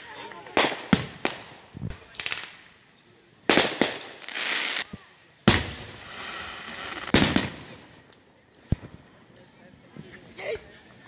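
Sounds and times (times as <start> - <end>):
firework hiss: 3.4 - 8.0
firework bangs with echo: 3.5 - 4.8, 5.4 - 7.8.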